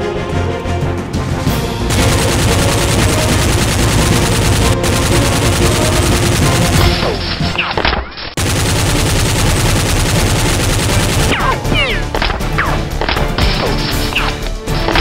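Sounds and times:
automatic gunfire sound effect: 1.9s - 13.8s.

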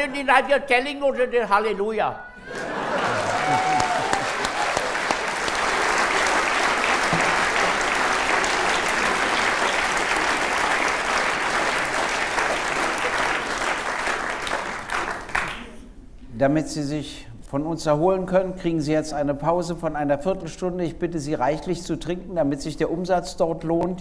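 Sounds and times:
audience applauding: 2.4s - 15.8s.

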